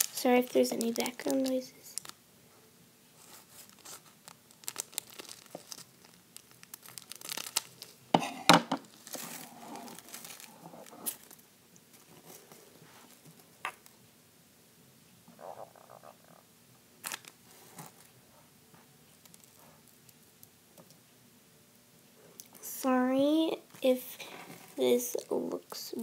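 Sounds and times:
plastic bag crinkling and tearing: 0.0 - 2.2, 3.2 - 8.0, 8.8 - 12.1, 17.0 - 18.1, 19.2 - 19.6.

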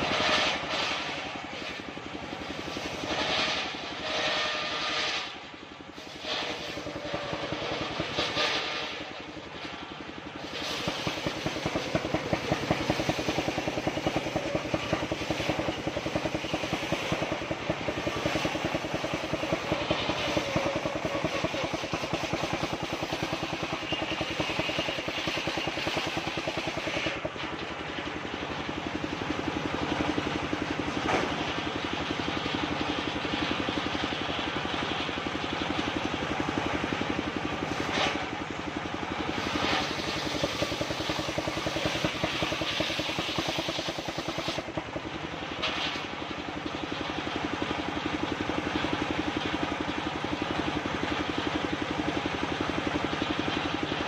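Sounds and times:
saw blade cutting wood: 0.0 - 9.8, 10.4 - 27.7, 37.7 - 38.3, 39.3 - 44.9
circular saw running: 0.0 - 54.0.

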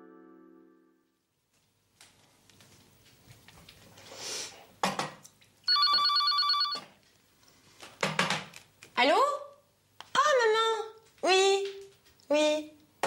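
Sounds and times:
telephone ringing electronic trill: 5.7 - 6.9
things clattering on counter: 7.9 - 8.5.

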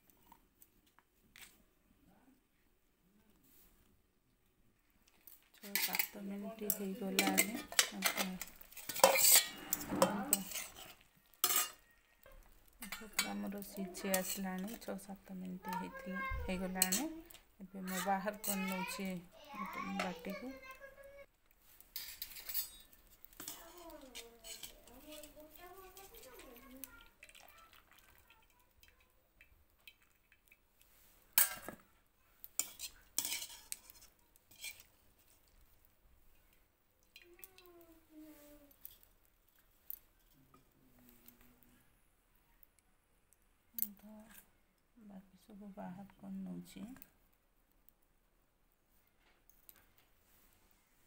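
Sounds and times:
metal spatula scraping pot: 5.3 - 20.5, 21.9 - 27.5, 31.3 - 31.8, 32.4 - 35.6
skimmer clanking on metal pot: 5.7 - 10.8.

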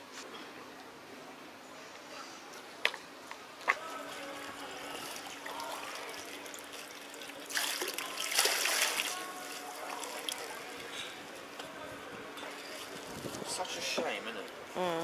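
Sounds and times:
water splashing and trickling: 3.8 - 11.4, 12.5 - 14.6.

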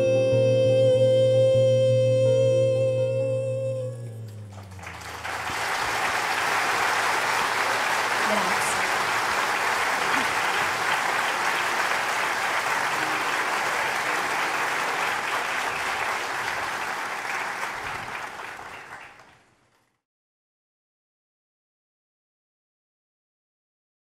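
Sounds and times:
audience applauding: 4.5 - 20.0.

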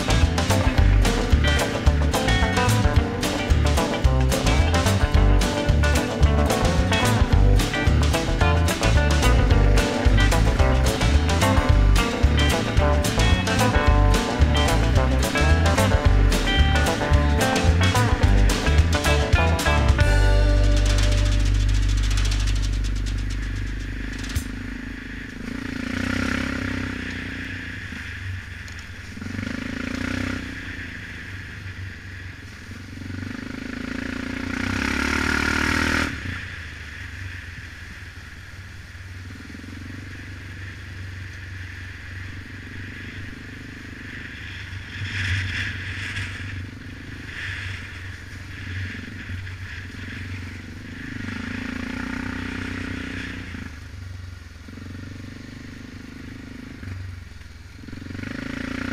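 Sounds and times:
rattling over bumps: 0.0 - 25.6
atv engine running: 0.0 - 58.9.

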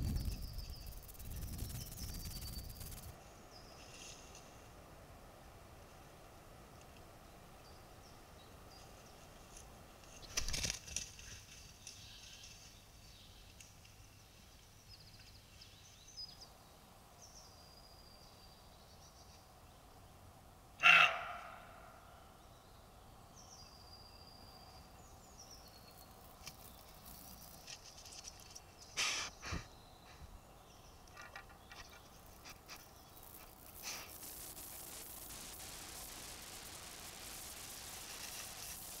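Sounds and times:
bird song: 0.0 - 4.0, 11.6 - 33.7.

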